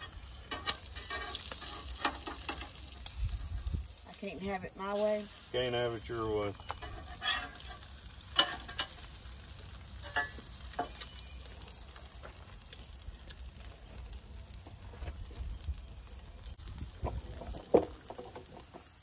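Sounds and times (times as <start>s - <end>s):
metal spatula clicking on griddle: 0.0s - 3.2s, 8.4s - 9.0s
eggs sizzling on griddle: 0.0s - 19.0s
wind rumble on microphone: 3.0s - 4.0s, 15.0s - 17.8s.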